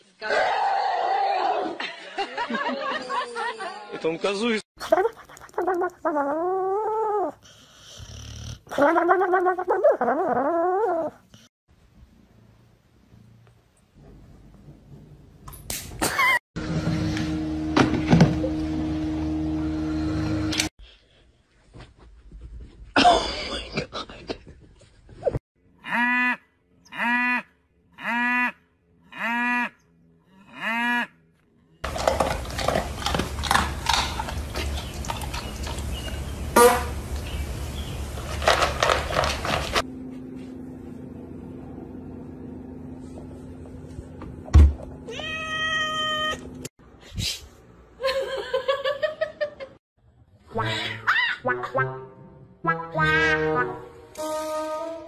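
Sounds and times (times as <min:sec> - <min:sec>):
cat meowing: 0:45.1 - 0:46.5.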